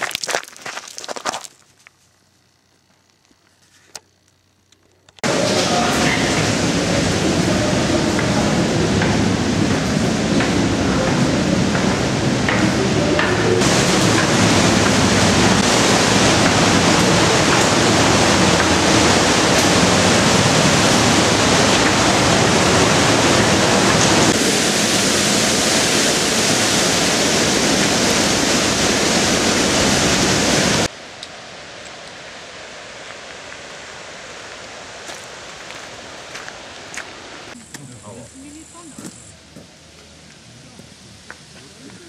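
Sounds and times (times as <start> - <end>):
torrent rushing through gorge: 5.2 - 30.9
faint outdoor hiss: 30.9 - 42.0.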